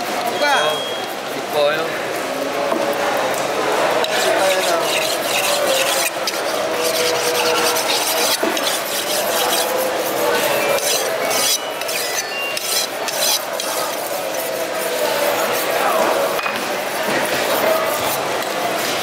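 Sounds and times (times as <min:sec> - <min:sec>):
knife rasping on whetstone: 0:04.0 - 0:16.4, 0:17.0 - 0:18.3.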